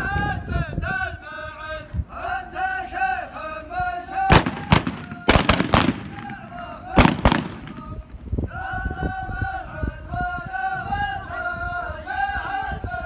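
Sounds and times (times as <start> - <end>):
men chanting in unison: 0.0 - 13.0
gunshots: 4.3 - 8.0.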